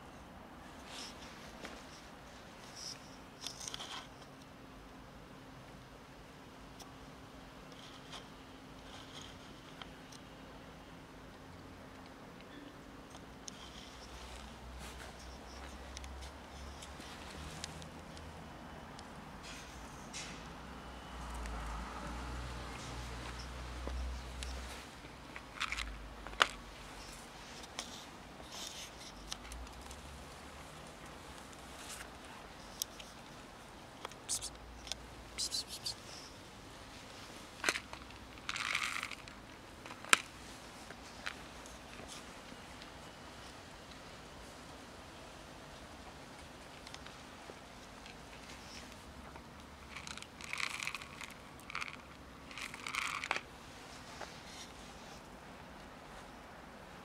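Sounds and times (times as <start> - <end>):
cats eating dry kibble: 21.3 - 43.0, 46.4 - 55.2
plastic tray and kibble rattling: 49.9 - 53.4.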